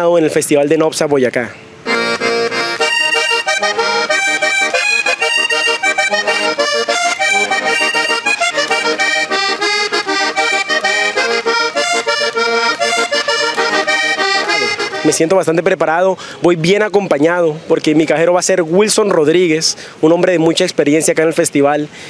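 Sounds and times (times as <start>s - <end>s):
button accordion playing: 1.8s - 15.3s.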